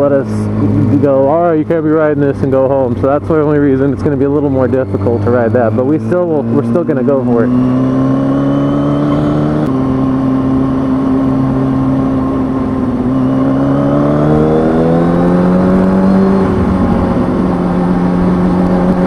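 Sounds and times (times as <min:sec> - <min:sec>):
motorcycle engine accelerating: 0:00.0 - 0:19.0
wind rush: 0:09.3 - 0:19.0.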